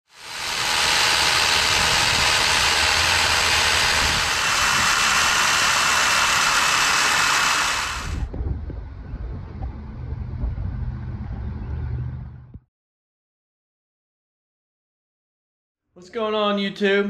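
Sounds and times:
saw cutting through timber: 0:00.0 - 0:08.3.

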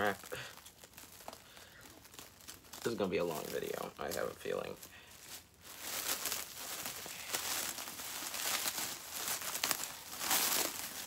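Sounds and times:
plastic cling wrap crinkling: 0:00.0 - 0:11.0.

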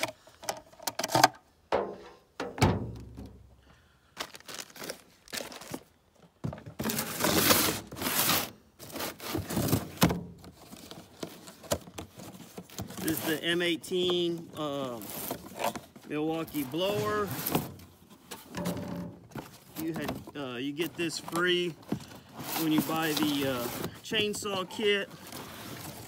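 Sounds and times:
chainsaw set down on steel: 0:01.8 - 0:03.4
cardboard rustling and scraping: 0:04.2 - 0:26.0.

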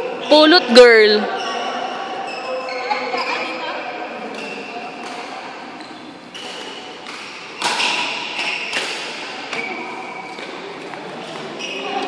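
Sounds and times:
racket hitting shuttlecock: 0:04.3 - 0:05.4, 0:06.3 - 0:11.5.

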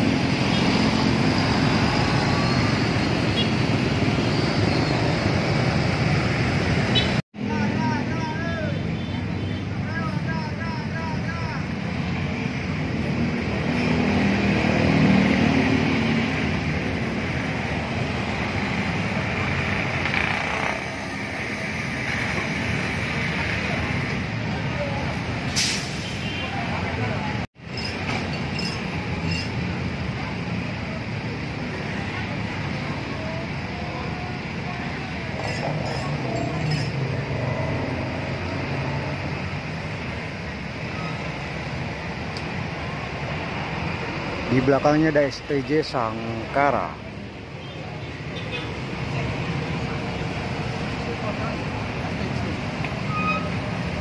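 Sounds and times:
bus diesel engine: 0:00.0 - 0:54.0
road traffic noise: 0:00.0 - 0:54.0
short hiss: 0:25.5 - 0:26.3.

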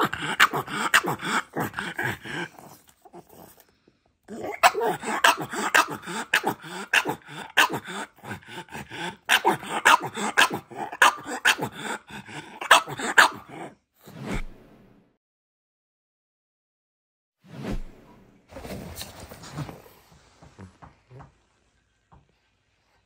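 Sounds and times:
dog barking: 0:04.5 - 0:08.0, 0:09.3 - 0:11.7, 0:12.6 - 0:13.5.

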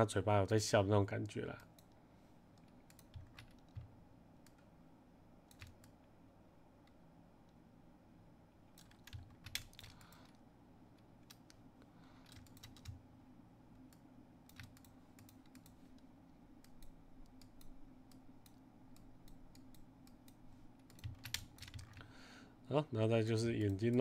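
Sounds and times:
low room hum: 0:00.0 - 0:24.0
computer keyboard and mouse clicks: 0:01.2 - 0:04.7, 0:05.5 - 0:06.1, 0:08.7 - 0:10.4, 0:11.2 - 0:11.6, 0:12.2 - 0:13.0, 0:13.9 - 0:22.0.

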